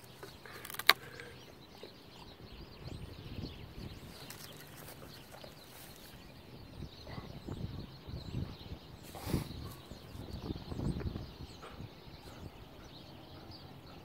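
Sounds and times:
faint bird chirps: 0.0 - 14.0
stick cracking: 0.2 - 1.2.

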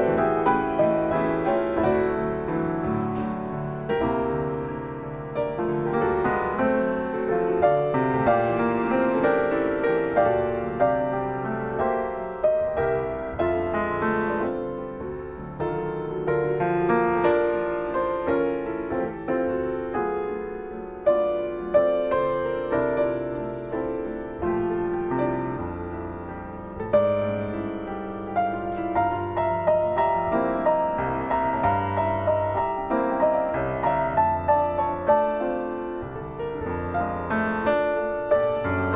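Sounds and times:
slow solo piano chords: 0.0 - 38.9.

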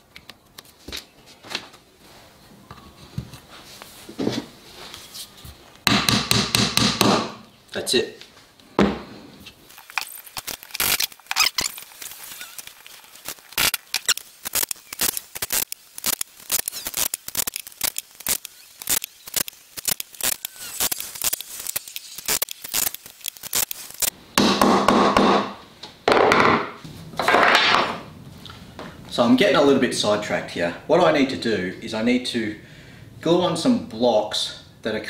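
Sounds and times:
scraping sounds: 9.0 - 24.1.

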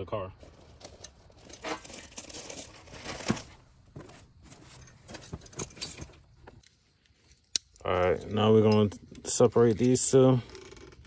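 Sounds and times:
packaging crinkling and rustling: 0.5 - 3.6.

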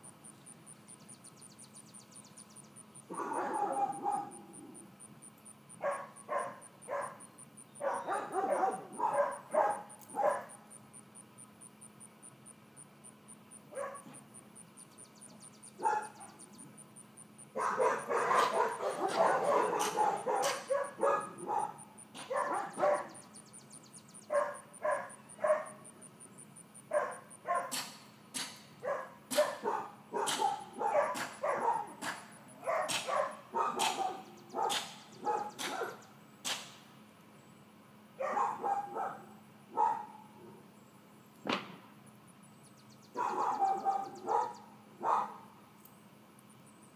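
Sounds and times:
puppy barking and yipping: 3.1 - 4.8, 5.7 - 10.7, 13.7 - 14.2, 15.8 - 16.4, 17.6 - 23.3, 24.2 - 25.9, 26.9 - 36.6, 38.2 - 40.4, 43.1 - 45.5.

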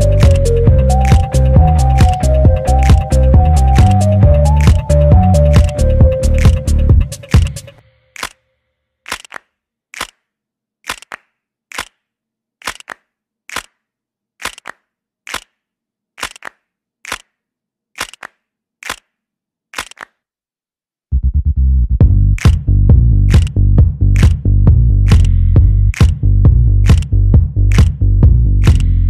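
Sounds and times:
heavy bass music: 0.0 - 7.6, 21.2 - 29.0
finger snaps keeping a beat: 0.0 - 8.4, 9.1 - 10.2, 10.9 - 12.0, 12.6 - 13.8, 14.4 - 15.6, 16.2 - 17.3, 18.0 - 19.1, 22.4 - 22.6, 23.2 - 24.4, 25.1 - 26.2, 26.8 - 27.1, 27.7 - 28.0, 28.6 - 28.9.

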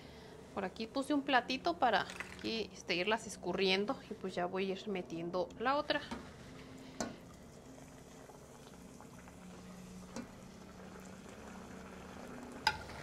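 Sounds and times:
oil bubbling in pot: 1.8 - 2.7, 5.9 - 13.0.

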